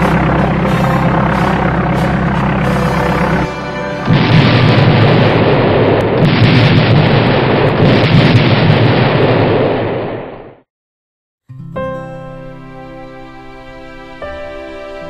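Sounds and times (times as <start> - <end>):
bomber aircraft engines droning: 0.0 - 6.2
bombs exploding rumble: 4.0 - 10.6.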